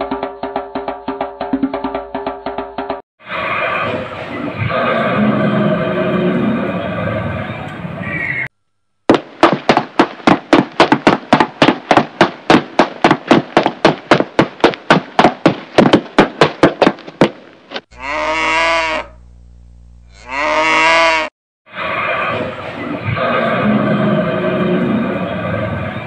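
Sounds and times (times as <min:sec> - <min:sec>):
heavy cartoon thumps: 0:09.1 - 0:17.8
cow mooing: 0:17.9 - 0:19.2, 0:20.1 - 0:21.3.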